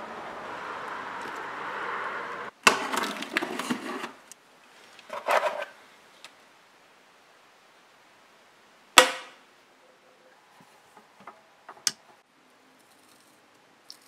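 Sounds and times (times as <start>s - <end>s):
steady background hiss: 0.0s - 14.0s.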